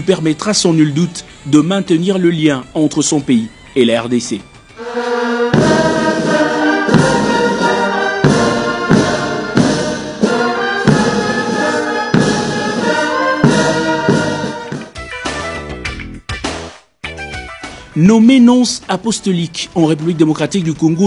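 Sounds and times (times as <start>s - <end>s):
big drums beating: 4.8s - 15.0s
brass band notes: 4.8s - 15.5s.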